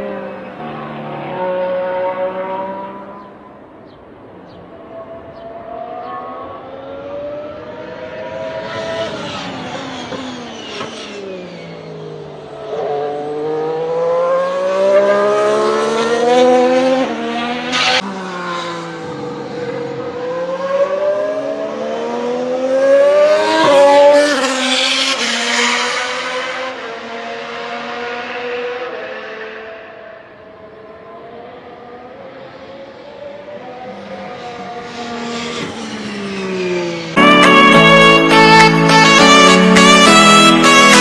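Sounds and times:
race car engine revving: 0.0s - 3.3s, 5.5s - 30.1s.

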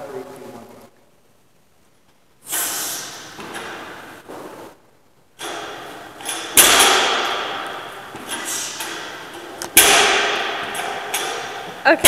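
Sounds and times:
loud barbell thud: 2.6s - 4.8s, 5.4s - 12.0s
barbell plates clanking: 3.0s - 4.6s, 5.4s - 12.0s.

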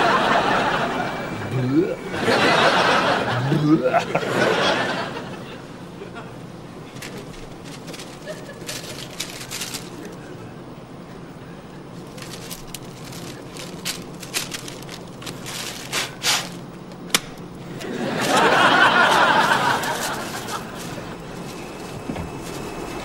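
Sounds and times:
audience laughing: 0.0s - 7.3s, 8.0s - 9.9s, 17.6s - 21.5s
puffing into paper bag: 6.9s - 10.2s, 12.0s - 16.7s, 18.2s - 23.0s.

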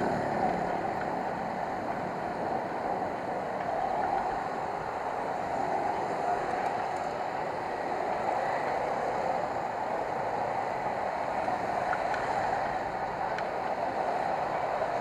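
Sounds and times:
road noise: 0.0s - 15.0s
wind buffeting camera: 0.0s - 15.0s.

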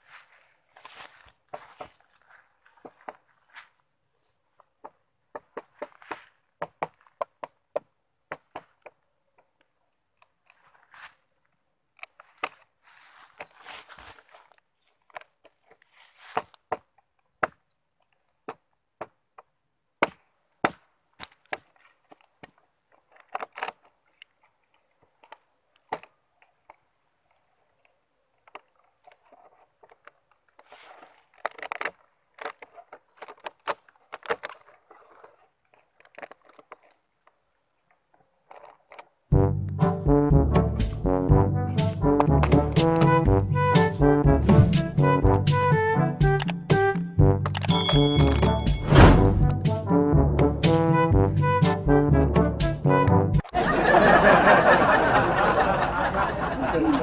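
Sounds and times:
rustling: 0.0s - 4.8s, 8.6s - 17.0s, 21.1s - 39.3s
brass music: 39.3s - 53.5s.

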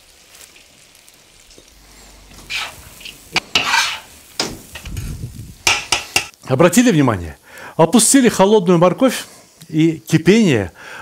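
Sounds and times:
low sizzle: 0.0s - 11.0s
metal utensil scraping pot: 2.1s - 5.0s, 5.6s - 6.3s
metal clacking on pot: 5.6s - 6.4s.

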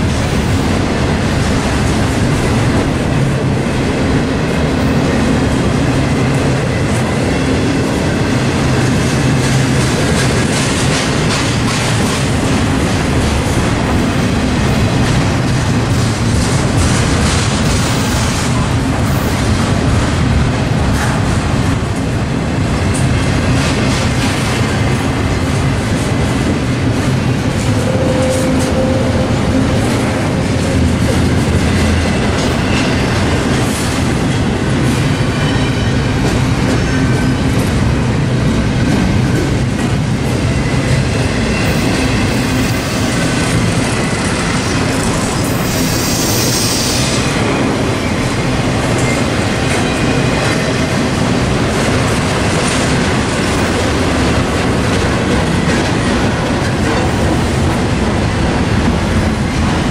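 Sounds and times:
train wheels rumbling and clacking: 0.0s - 59.9s.

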